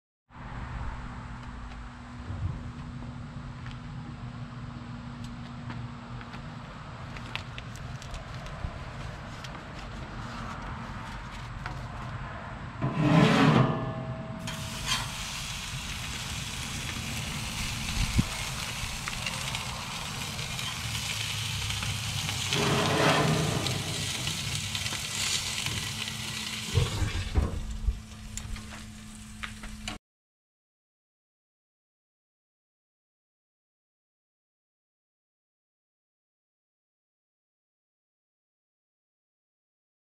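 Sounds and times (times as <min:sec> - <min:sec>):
steak sizzling in a skillet: 0:14.5 - 0:27.1.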